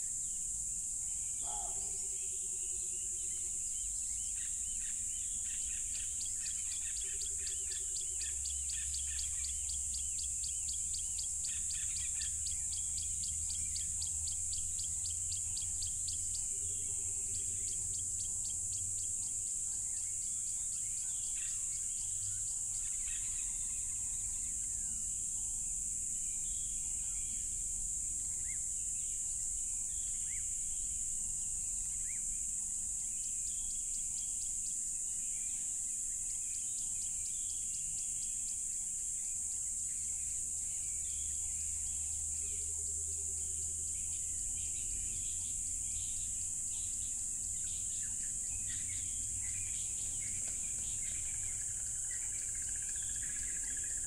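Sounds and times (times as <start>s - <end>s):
crickets trilling: 0.0s - 54.0s
birds chirping: 1.4s - 2.3s, 44.0s - 54.0s.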